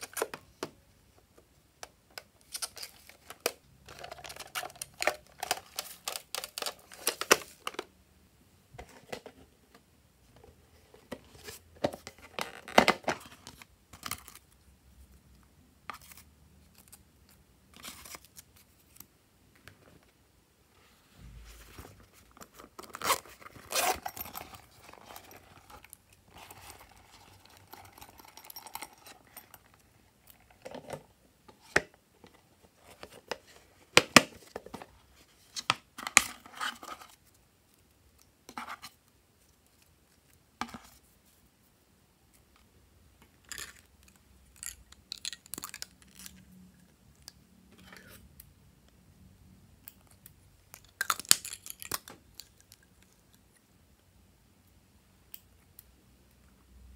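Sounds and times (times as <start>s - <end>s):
sequins rustling and rattling: 21.4s - 30.6s.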